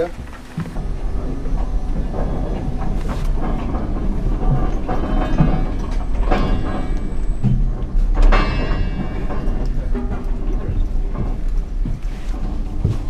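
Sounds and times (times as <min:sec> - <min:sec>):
boat engines rumbling: 0:00.0 - 0:13.0
irregular knocks: 0:00.0 - 0:13.0.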